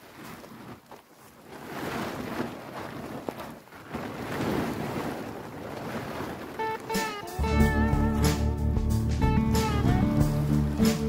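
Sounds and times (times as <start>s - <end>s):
plastic tarp rustling and crinkling: 0.0s - 7.6s.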